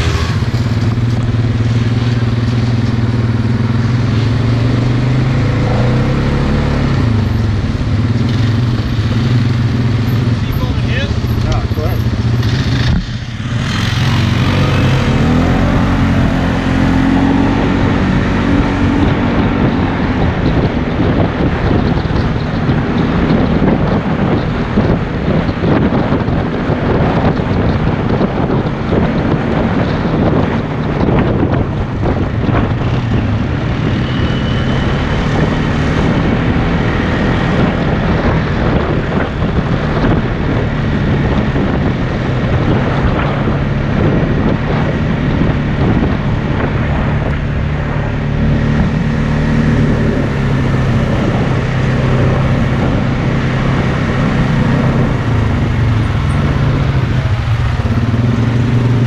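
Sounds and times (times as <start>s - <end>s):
engine running: 0.0s - 59.0s
wind buffeting microphone: 0.0s - 59.0s.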